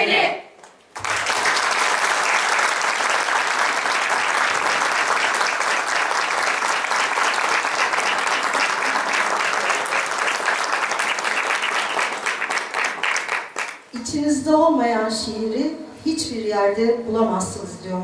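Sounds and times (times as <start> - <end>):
audience applause: 1.0 - 13.9.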